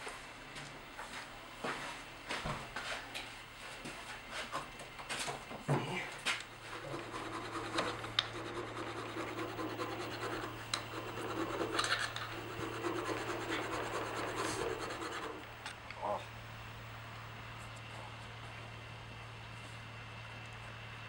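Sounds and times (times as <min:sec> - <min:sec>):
steady low hum: 0:04.7 - 0:21.0.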